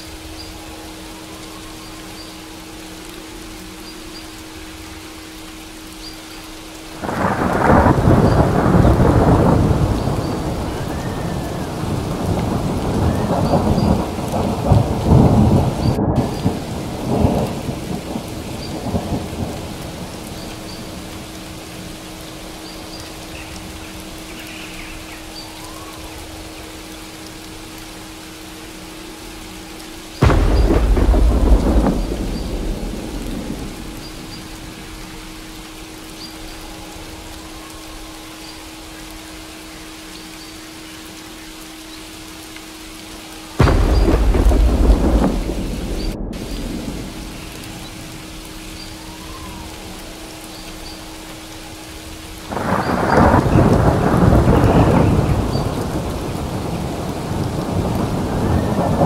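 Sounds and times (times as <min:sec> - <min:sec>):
steady rain: 0:00.0 - 0:59.0
thunder rolling: 0:07.0 - 0:21.3, 0:30.2 - 0:35.5, 0:43.6 - 0:50.2, 0:52.4 - 0:59.0.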